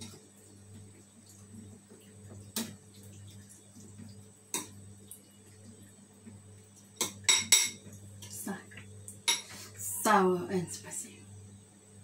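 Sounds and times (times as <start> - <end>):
low steady hum: 0.0 - 12.0
spoon clinking ceramic bowl: 7.0 - 7.8.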